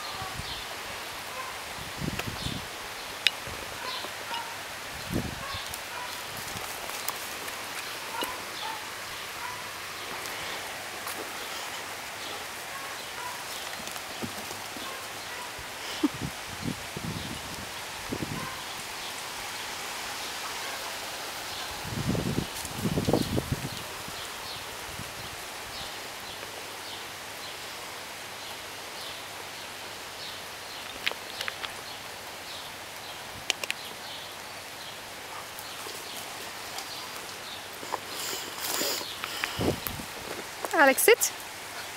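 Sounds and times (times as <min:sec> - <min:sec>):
light rain hiss: 0:00.0 - 0:41.9
rustling in dry pine needles: 0:05.0 - 0:08.6.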